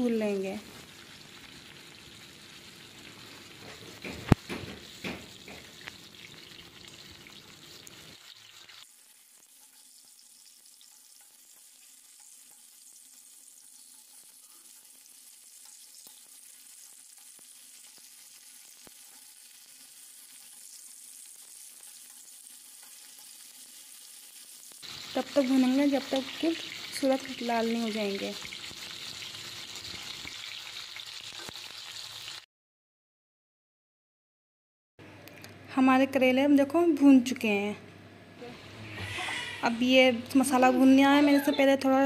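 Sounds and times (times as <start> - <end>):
vegetables sizzling in oil: 0.0 - 32.5, 39.1 - 42.0.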